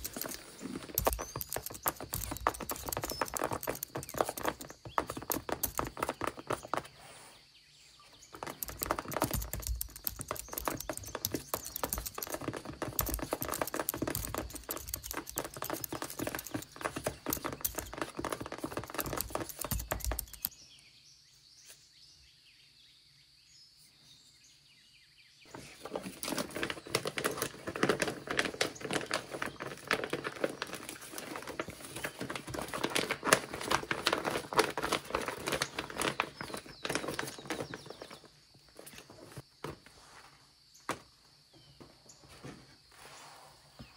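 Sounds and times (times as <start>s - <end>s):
paper nails tapping on paper keyboard: 0.0s - 6.9s, 8.4s - 20.5s, 26.2s - 38.1s
paper rustling: 0.0s - 7.0s, 8.3s - 20.5s, 25.5s - 39.4s.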